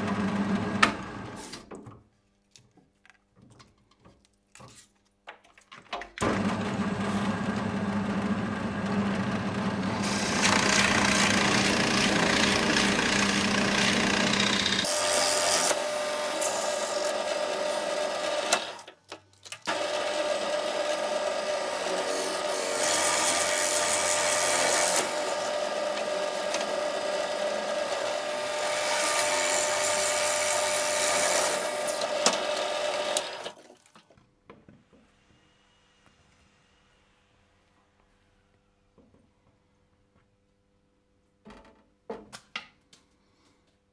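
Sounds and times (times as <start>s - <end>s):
drill press boring plywood: 0.0s - 1.7s, 6.2s - 19.0s, 19.7s - 33.8s.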